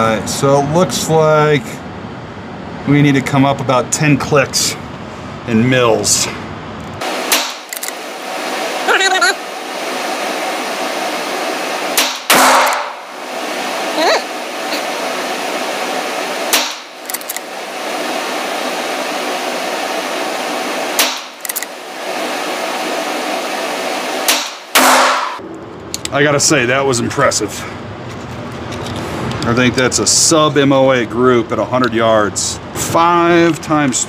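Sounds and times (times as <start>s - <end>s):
rifle shots echoing indoors: 12.0s - 13.1s, 24.3s - 25.4s.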